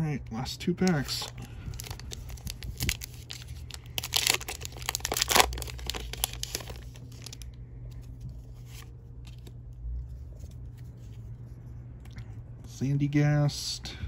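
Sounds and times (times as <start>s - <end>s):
foil wrapper tearing and crinkling: 0.9s - 7.5s.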